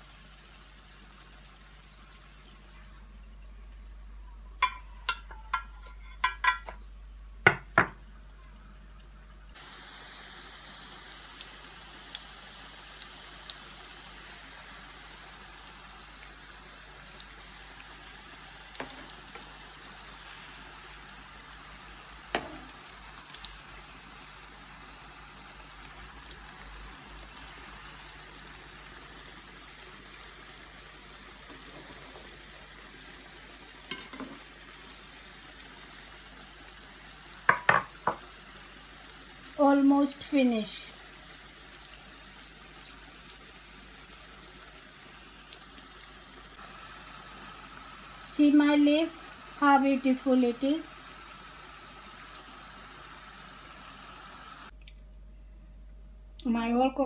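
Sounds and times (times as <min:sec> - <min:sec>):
pastries deep-frying in oil: 0:00.0 - 0:54.8
spoon knocking against frying pan: 0:04.6 - 0:06.8, 0:07.4 - 0:08.0, 0:22.3 - 0:22.7, 0:33.9 - 0:34.4, 0:37.5 - 0:38.3.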